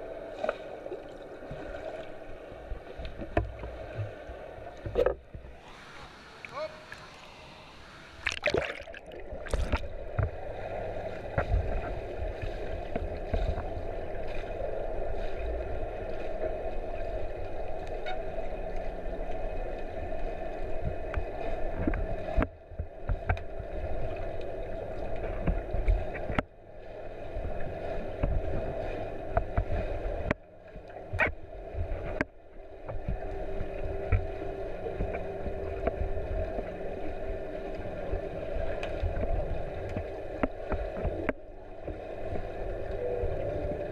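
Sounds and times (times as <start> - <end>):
muffled underwater rush: 0.0 - 43.9
dull underwater knocks: 8.2 - 10.4.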